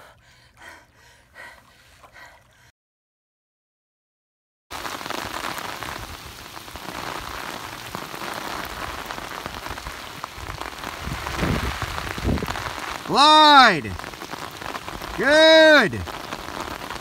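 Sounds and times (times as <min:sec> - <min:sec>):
heavy rain on water: 0:04.7 - 0:17.0.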